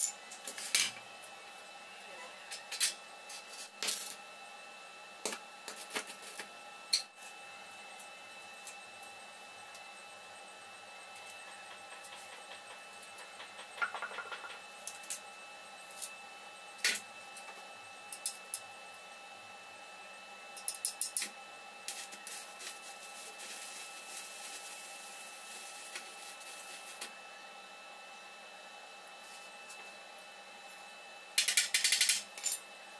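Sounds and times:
welding arc crackling: 0:05.3 - 0:07.0, 0:21.0 - 0:27.2.

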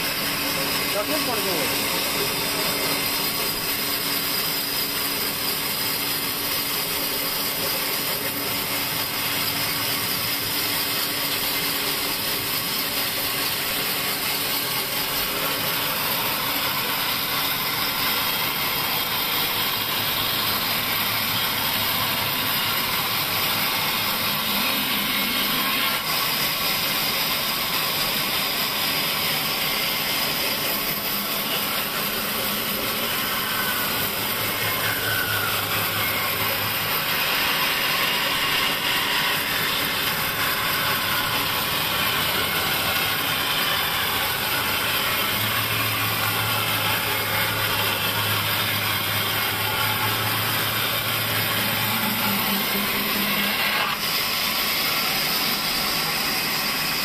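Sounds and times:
band saw cutting wood: 0:00.0 - 0:57.0.

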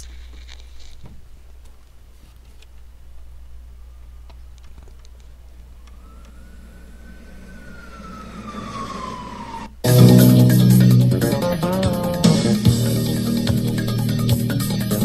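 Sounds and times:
faint low hum: 0:00.0 - 0:10.2
electronic whistle-like tone: 0:05.8 - 0:10.4
pop song with electric guitar: 0:09.9 - 0:15.0.

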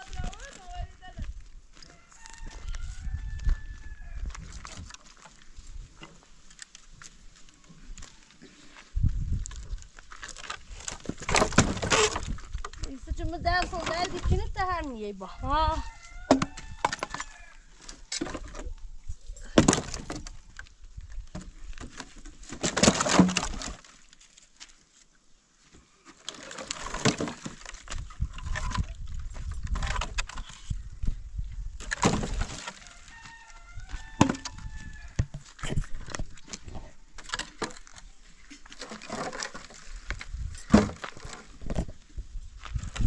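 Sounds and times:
logs knocking together: 0:09.6 - 0:13.0, 0:16.3 - 0:18.7, 0:19.4 - 0:24.2, 0:26.1 - 0:30.7, 0:31.8 - 0:33.3, 0:33.9 - 0:42.0.

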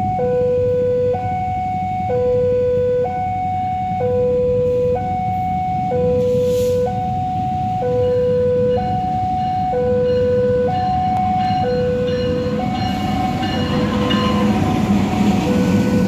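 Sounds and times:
diesel locomotive rumble: 0:00.0 - 0:16.0
two-tone crossing alarm: 0:00.0 - 0:16.0
short hiss: 0:06.3 - 0:06.8.

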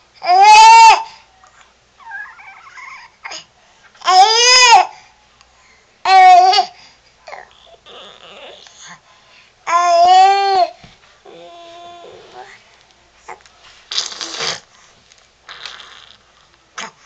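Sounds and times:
baby squealing: 0:02.0 - 0:03.1.

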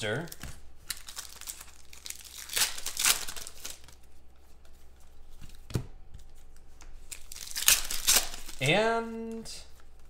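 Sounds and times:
foil pack tearing and crinkling: 0:00.9 - 0:04.0, 0:07.1 - 0:08.7.

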